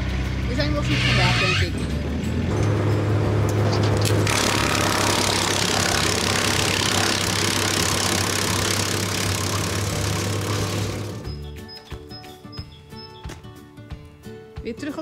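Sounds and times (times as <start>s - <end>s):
wood chipper engine drone: 0.0s - 11.3s
wood being chipped: 4.1s - 11.2s.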